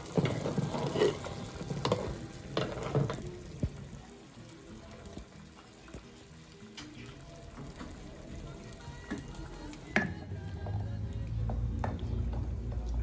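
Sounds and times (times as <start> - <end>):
ladle stirring wet beans: 0.0 - 3.9.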